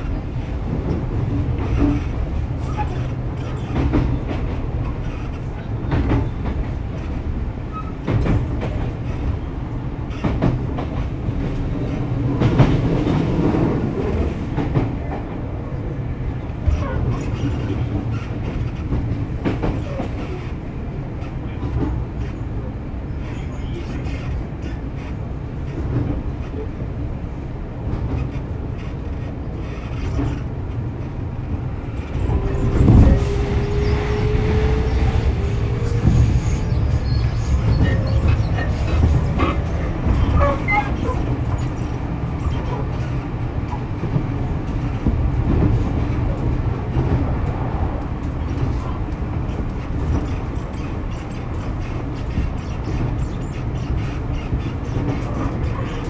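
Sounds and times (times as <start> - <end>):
electric train rumble: 0.0 - 56.0.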